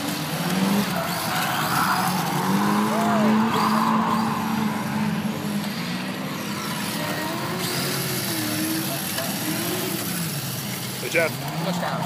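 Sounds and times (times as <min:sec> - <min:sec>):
car engine running: 0:00.0 - 0:12.0
people talking: 0:01.0 - 0:05.6, 0:08.3 - 0:10.0, 0:11.0 - 0:12.0.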